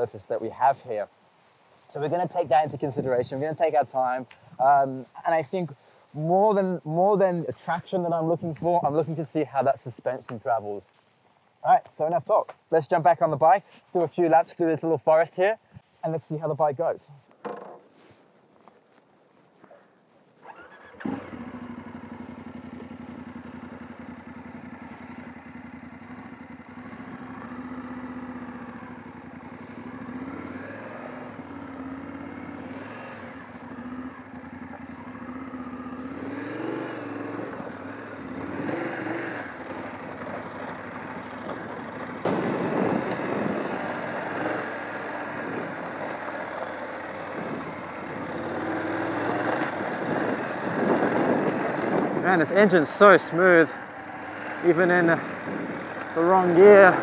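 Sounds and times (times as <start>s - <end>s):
motorcycle engine revving: 20.4s - 57.0s.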